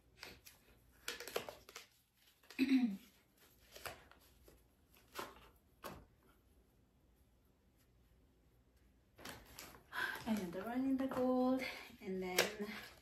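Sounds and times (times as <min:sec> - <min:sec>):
plastic packaging rustling: 0:09.2 - 0:11.4.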